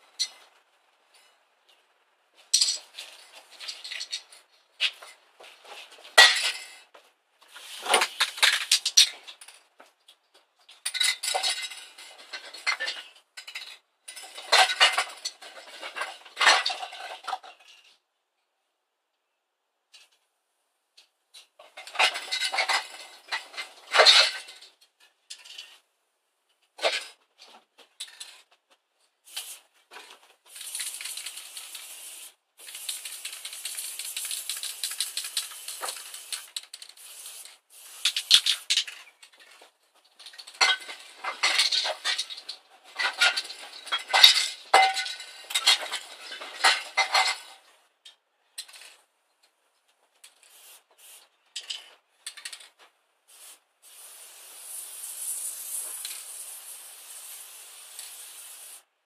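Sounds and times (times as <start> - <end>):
spray can ball rattling: 2.5 - 5.1, 7.5 - 9.6, 29.2 - 29.7, 30.5 - 47.5, 50.2 - 58.8
spray paint hissing: 7.5 - 8.8, 29.2 - 29.7, 30.5 - 39.0, 50.4 - 51.3, 53.3 - 58.9.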